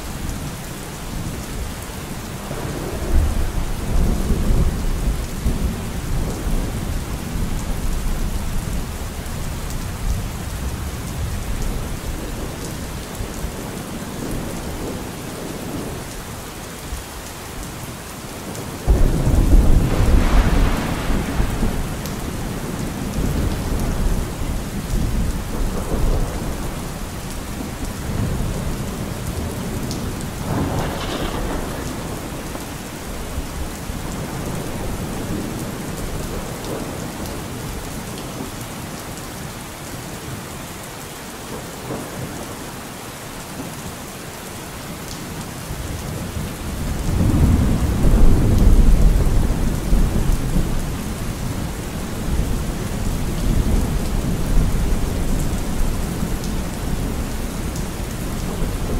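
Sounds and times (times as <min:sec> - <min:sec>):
steady rain: 0:00.0 - 0:58.9
loud thunderclap: 0:18.9 - 0:24.4, 0:30.1 - 0:32.8
rolling thunder: 0:18.9 - 0:37.3, 0:46.8 - 0:58.9.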